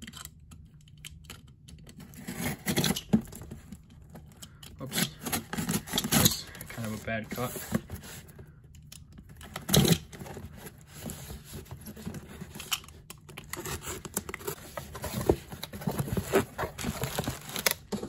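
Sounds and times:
tape tearing: 0:02.0 - 0:03.5, 0:04.8 - 0:08.2, 0:09.4 - 0:18.0
cardboard flaps scraping: 0:13.6 - 0:18.0.

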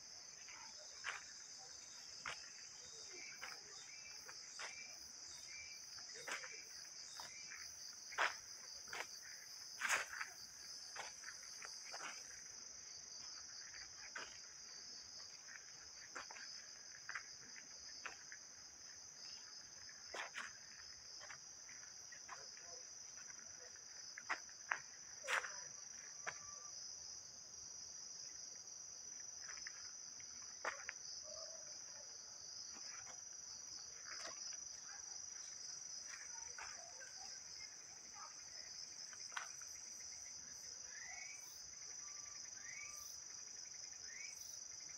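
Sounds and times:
insect chorus trilling: 0:33.7 - 0:44.9.

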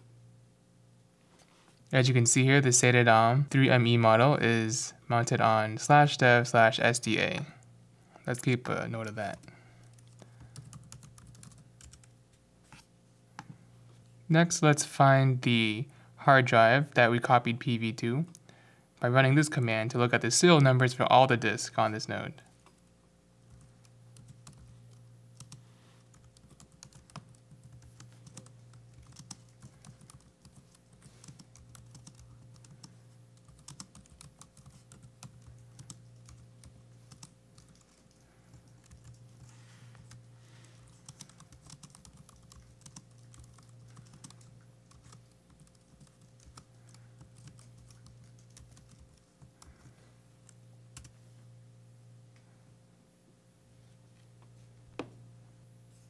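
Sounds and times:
steady low hum: 0:00.0 - 0:56.0
typing on computer keyboard: 0:09.9 - 0:12.1, 0:23.5 - 0:39.5, 0:40.9 - 0:49.8.

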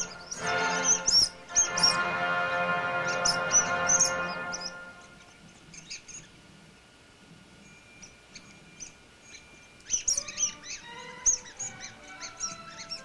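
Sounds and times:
faint music: 0:00.0 - 0:13.0
rubber squeaky toy squeaking: 0:09.9 - 0:13.0.

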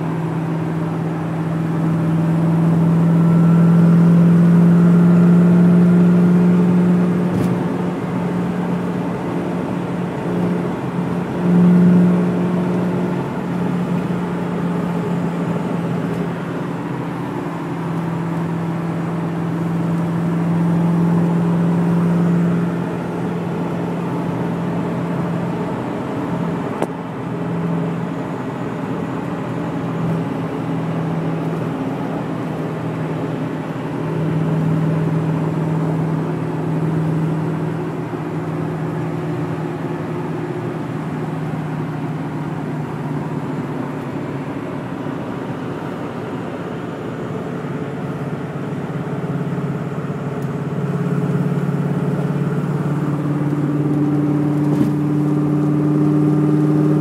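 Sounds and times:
car engine droning: 0:00.0 - 0:57.0
tyre and road noise: 0:29.2 - 0:57.0.

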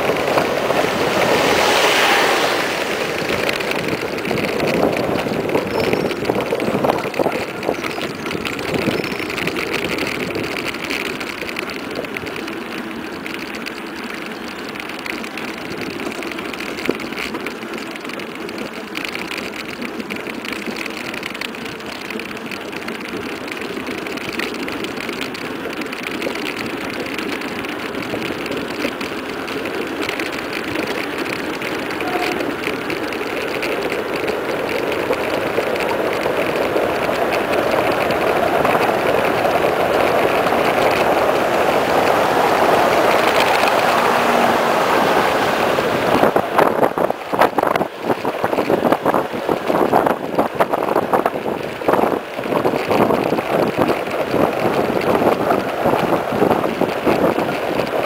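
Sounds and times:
wind past microphone: 0:00.0 - 0:10.7, 0:33.8 - 0:58.0
bike rattling: 0:00.0 - 0:58.0
tyres rushing on asphalt: 0:00.0 - 0:58.0.

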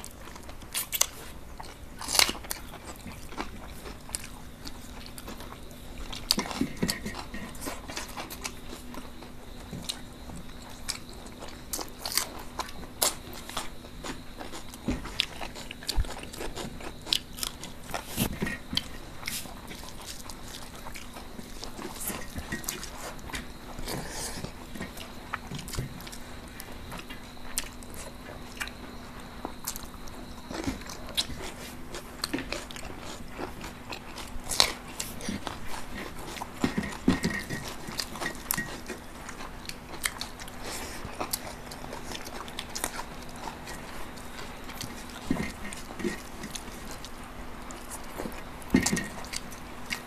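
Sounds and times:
chewing and lip smacks: 0:29.4 - 0:50.0.

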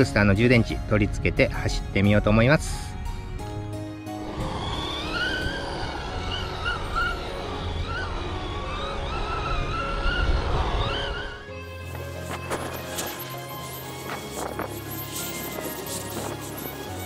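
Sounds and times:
background music: 0:00.0 - 0:17.0
rc car motor whining: 0:04.2 - 0:09.4.

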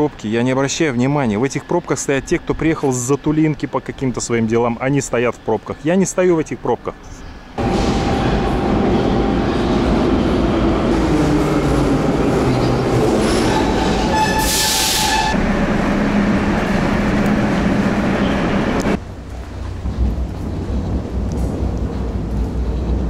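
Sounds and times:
metro train running: 0:06.9 - 0:23.0
train wheel noise: 0:07.5 - 0:23.0
loud hiss: 0:14.4 - 0:15.4.

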